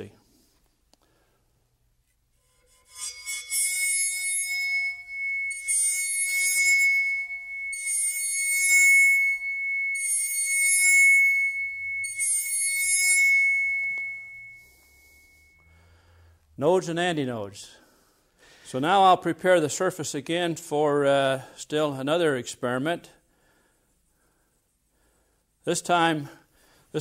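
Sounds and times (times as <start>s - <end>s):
scratchy bow strokes: 2.1s - 15.8s
bowed saw blade ringing tone: 2.4s - 16.4s.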